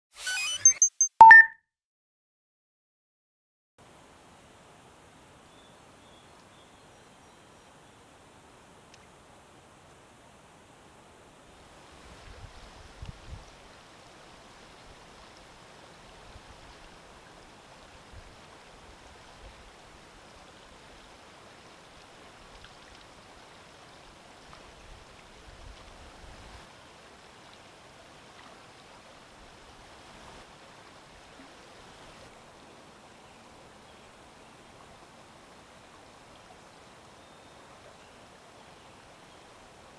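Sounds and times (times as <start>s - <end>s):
faint flowing river water: 3.8s - 39.9s.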